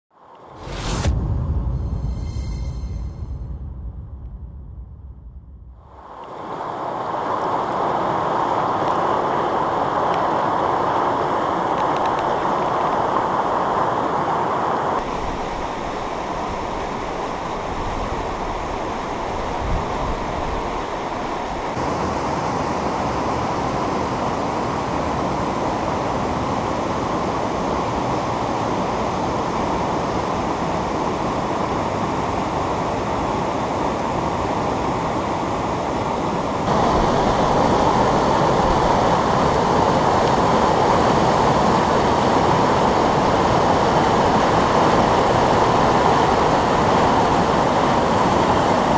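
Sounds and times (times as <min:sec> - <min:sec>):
river rushing over rapids: 0:20.2 - 0:48.9.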